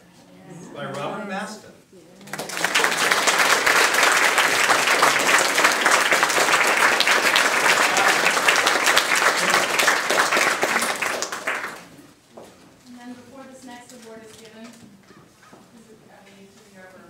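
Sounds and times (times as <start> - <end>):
crowd applauding: 2.3 - 12.0.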